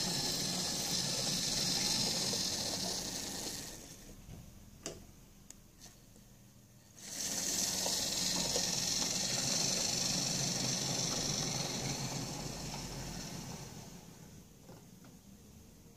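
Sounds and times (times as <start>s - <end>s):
model train motor hissing: 0.0s - 4.0s, 7.0s - 14.2s.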